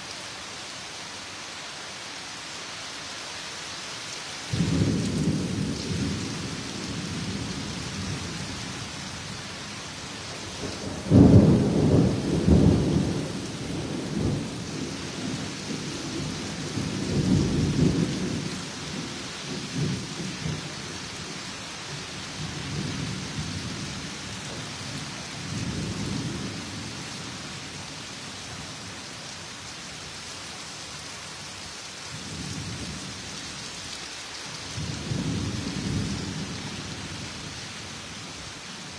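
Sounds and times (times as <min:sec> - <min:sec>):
steady rain: 0:00.0 - 0:38.9
thunder rumbling: 0:10.6 - 0:14.6.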